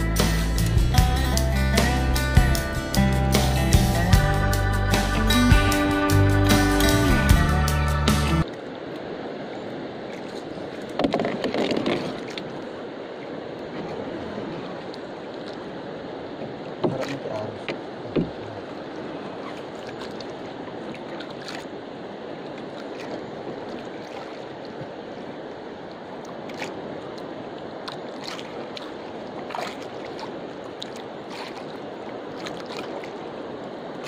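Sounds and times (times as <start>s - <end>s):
water lapping against canoe: 8.4s - 34.0s
knocks on wooden hull: 11.0s - 12.2s, 16.8s - 18.4s.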